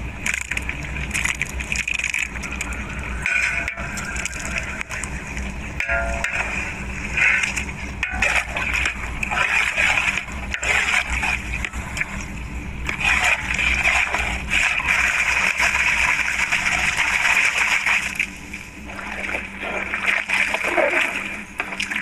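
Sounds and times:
water splashing: 0.2 - 22.0
spatula scraping pot: 2.5 - 11.8, 12.9 - 15.9.

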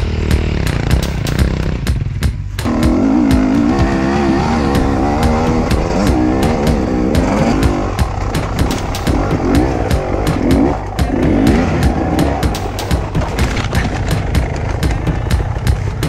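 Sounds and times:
motorcycle engine revving: 0.0 - 16.0
knocks and clatter from bike: 5.2 - 16.0.

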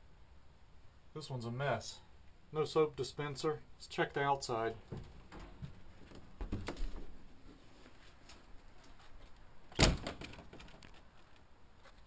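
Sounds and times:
plastic door slamming shut: 9.7 - 10.5.

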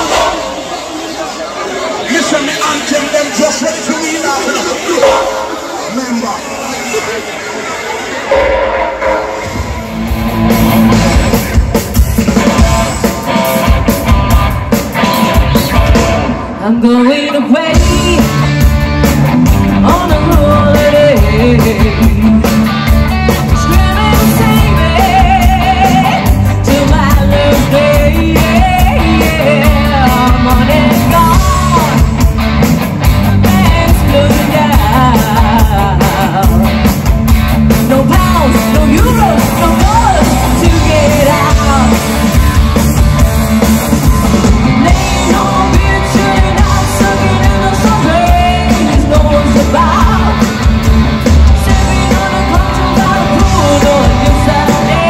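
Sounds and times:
live rock band: 0.0 - 55.0
woman singing lead: 16.2 - 18.6, 19.6 - 32.2, 33.1 - 36.9, 37.7 - 42.5, 44.4 - 55.0.

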